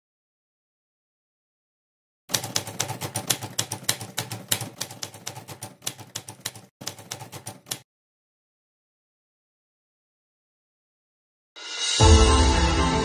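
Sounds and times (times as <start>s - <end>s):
rapid typing key clicks: 2.3s - 7.8s.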